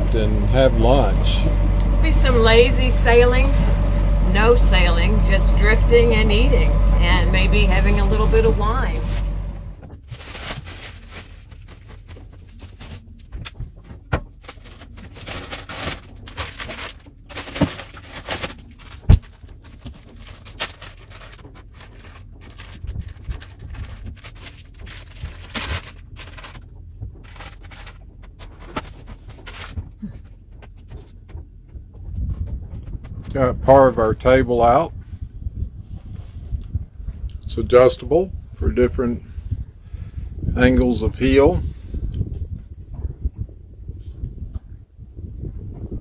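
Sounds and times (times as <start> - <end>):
low steady hum: 0.0 - 13.9
plastic packaging rustling: 8.9 - 29.9.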